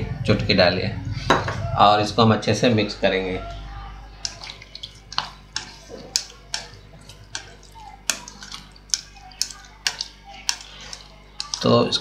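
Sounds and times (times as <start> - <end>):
wet squelching: 3.4 - 12.0
spatula clicking against bowl: 4.2 - 11.7.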